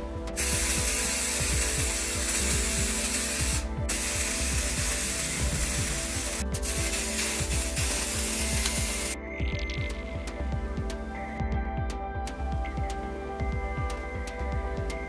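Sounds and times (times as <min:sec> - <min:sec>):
aerosol spray can hissing: 0:00.4 - 0:09.2.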